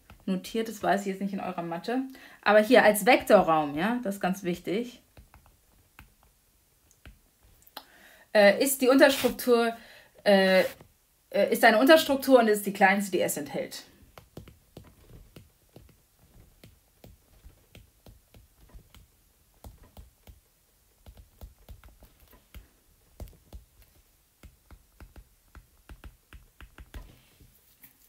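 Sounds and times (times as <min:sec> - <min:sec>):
stylus tapping on glass screen: 0:21.0 - 0:27.2.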